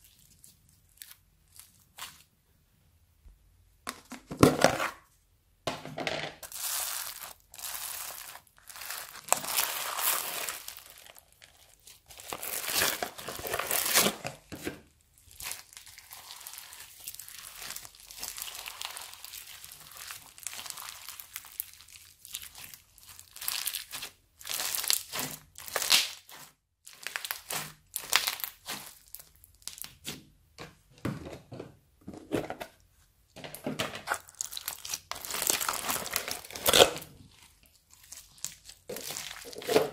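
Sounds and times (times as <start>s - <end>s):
slime squelching with beads: 0.0s - 2.3s, 6.4s - 30.2s, 34.1s - 39.9s.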